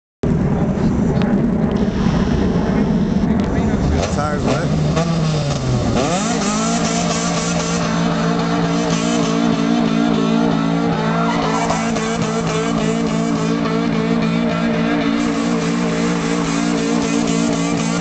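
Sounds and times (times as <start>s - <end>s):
car engine at high revs: 0.2s - 18.0s
tyres squealing: 6.8s - 18.0s.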